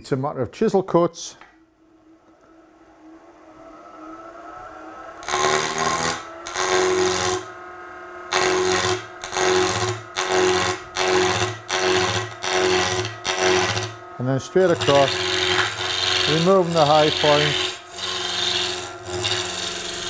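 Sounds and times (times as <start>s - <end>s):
lathe motor humming: 2.4s - 20.0s
gouge cutting spinning wood: 5.2s - 7.6s, 8.3s - 20.0s.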